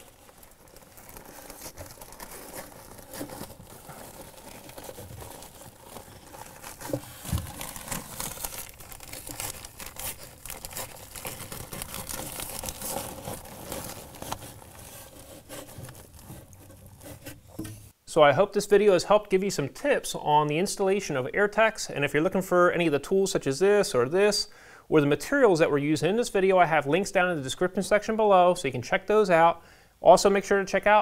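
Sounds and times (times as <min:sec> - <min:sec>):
material crinkling and rustling: 0:00.0 - 0:18.0.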